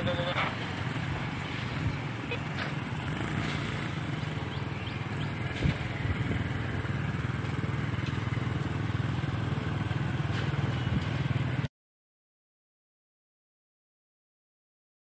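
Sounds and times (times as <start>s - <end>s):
road noise: 0.0s - 11.7s
vehicle engine running: 0.0s - 11.7s.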